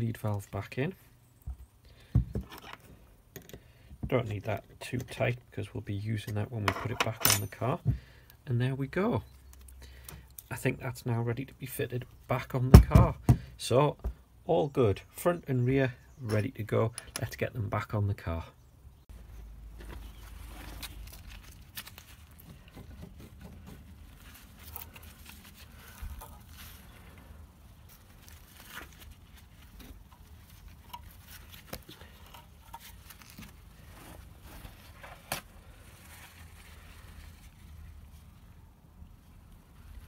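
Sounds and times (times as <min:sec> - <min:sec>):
light clicks and knocks of tools: 0:16.9 - 0:17.3, 0:29.7 - 0:33.5
rustling: 0:19.1 - 0:40.0.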